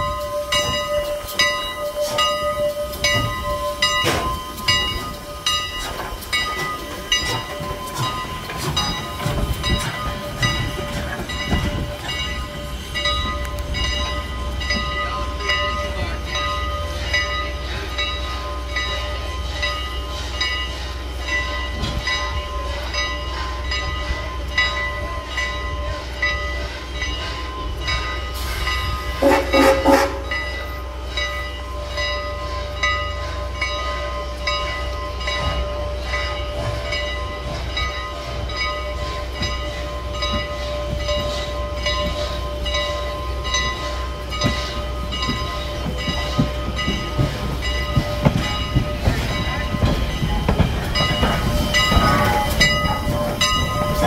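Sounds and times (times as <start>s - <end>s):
steam locomotive rumbling: 0.0s - 54.0s
steam whistle blast: 29.2s - 30.4s.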